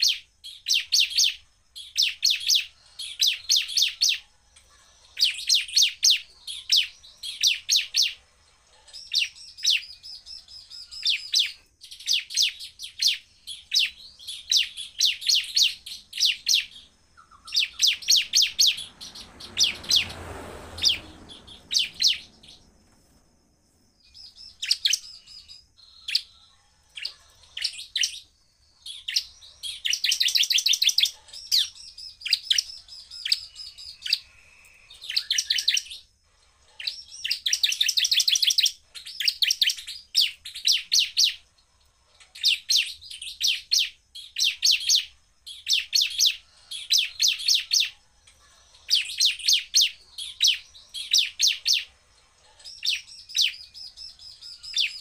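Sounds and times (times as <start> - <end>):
bird fast sharp chirps: 0.0 - 26.3.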